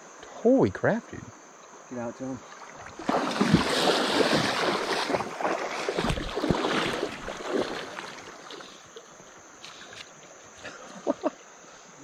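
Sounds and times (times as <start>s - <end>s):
river water splashing: 2.2s - 11.2s.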